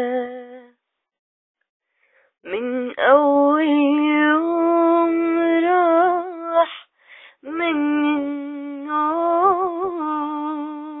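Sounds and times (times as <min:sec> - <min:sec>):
person singing unaccompanied: 0:00.0 - 0:00.8, 0:02.4 - 0:06.8.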